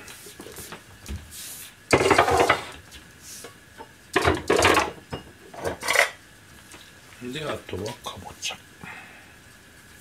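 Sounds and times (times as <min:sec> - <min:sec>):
kitchen things clattering: 0:01.9 - 0:02.8, 0:04.2 - 0:06.2.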